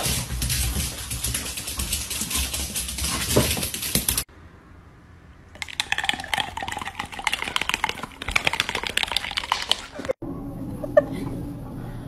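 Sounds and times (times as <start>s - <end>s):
dog claws clicking on wooden floor: 0.0s - 4.3s
dog chewing: 5.6s - 10.1s.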